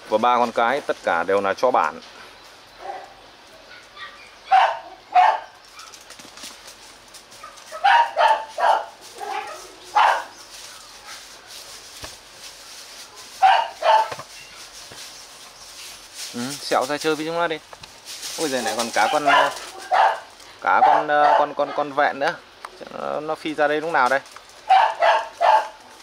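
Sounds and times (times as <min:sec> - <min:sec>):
dog barking: 0:02.8 - 0:05.9, 0:07.4 - 0:10.4, 0:13.4 - 0:14.2, 0:19.0 - 0:21.9, 0:24.7 - 0:25.8.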